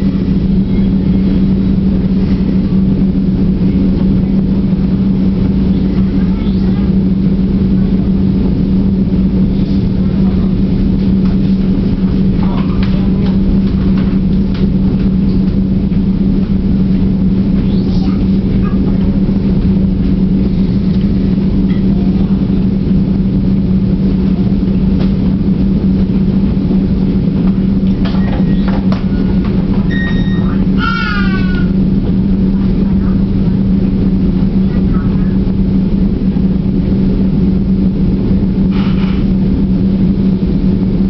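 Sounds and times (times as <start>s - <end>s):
train hum and rumble: 0.0s - 41.0s
faint squeaks and clicks: 28.0s - 31.7s.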